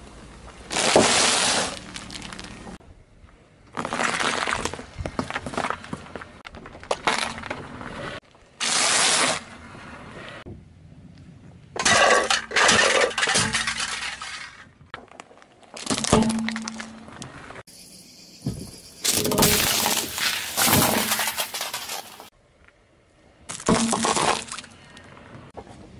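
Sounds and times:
tyre crunching small objects: 0.7 - 2.8, 3.7 - 9.4, 11.8 - 17.4, 19.0 - 22.3
tyre squashing water beads: 3.8 - 5.9, 19.0 - 22.3.

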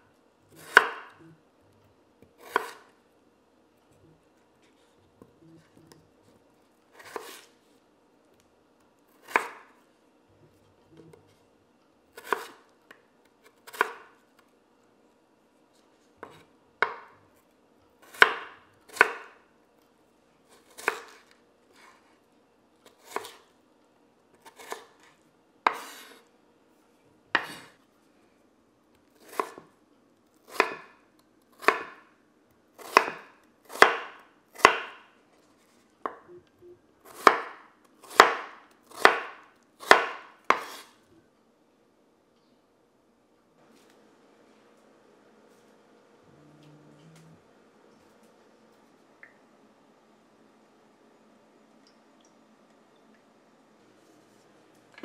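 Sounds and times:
knife chopping on cutting board: 0.5 - 1.3, 2.3 - 2.9, 7.0 - 7.5, 9.2 - 9.8, 12.2 - 12.6, 13.5 - 14.2, 16.2 - 17.2, 18.0 - 19.4, 20.6 - 21.2, 27.3 - 27.7, 29.2 - 29.7, 30.4 - 31.0, 31.6 - 32.1, 32.8 - 35.0, 37.1 - 40.9.

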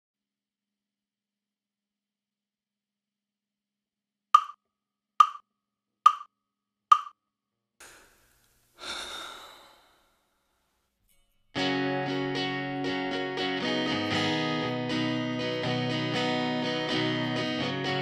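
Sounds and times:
wood-block clicks: 4.4 - 4.6, 5.2 - 5.5, 6.1 - 6.3, 6.9 - 7.2
short breath: 7.8 - 10.4.

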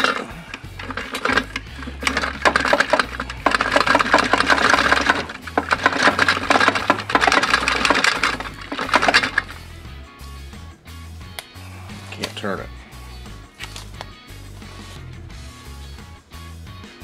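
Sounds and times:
metallic rattle of splined parts: 0.0 - 9.8.

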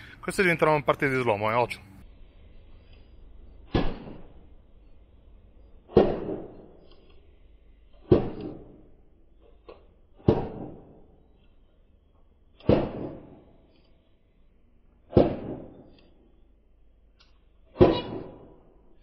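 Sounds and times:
hatchet chopping on stone: 5.9 - 6.7, 8.1 - 8.8, 10.2 - 11.0.

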